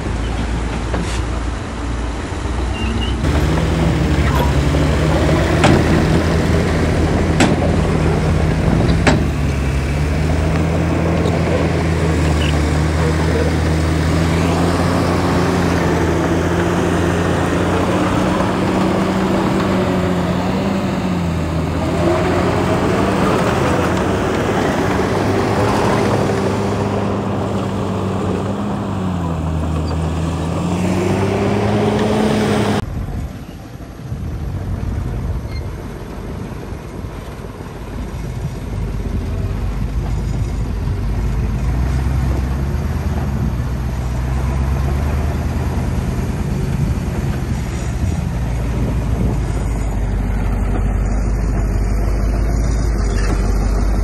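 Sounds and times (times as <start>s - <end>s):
heavy machinery diesel engine: 0.0s - 54.0s
sharp knocks: 5.4s - 6.4s, 7.2s - 9.5s.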